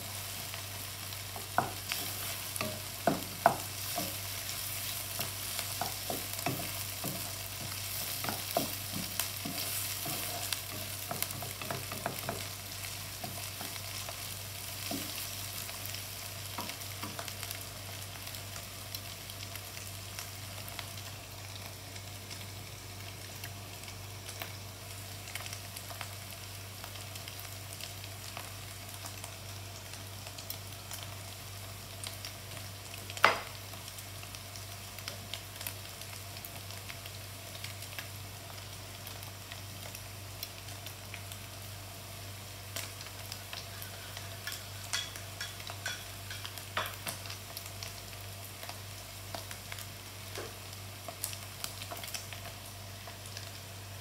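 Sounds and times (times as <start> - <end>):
meat and onions sizzling: 0.0 - 54.0
wooden spatula scraping wok: 1.4 - 13.9.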